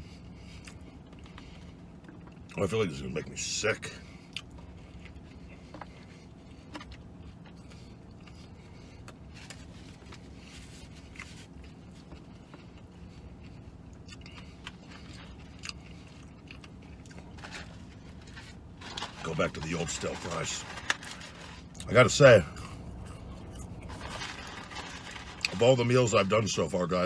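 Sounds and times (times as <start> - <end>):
person chewing: 0.1 - 2.6, 4.1 - 18.7, 22.5 - 25.4
paper food carton rustling: 17.3 - 21.6, 23.9 - 25.4.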